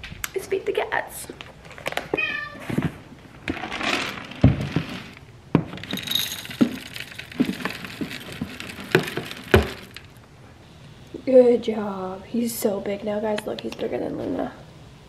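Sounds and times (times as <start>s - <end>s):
dry kibble poured into bowl: 5.8s - 10.1s.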